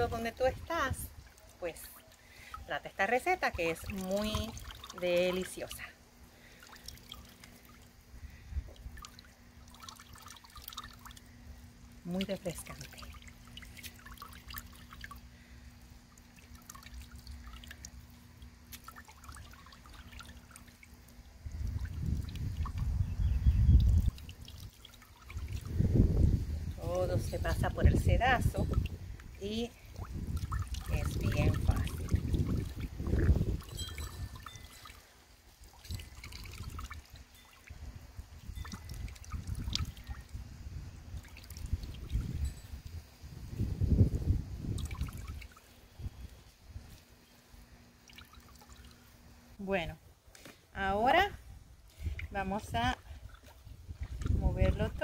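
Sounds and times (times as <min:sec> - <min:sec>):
liquid trickling into a bucket: 0:00.2 - 0:47.0, 0:47.6 - 0:49.4, 0:51.9 - 0:55.0
liquid dripping into plastic tub: 0:08.7 - 0:11.3, 0:12.2 - 0:22.9, 0:28.5 - 0:35.0.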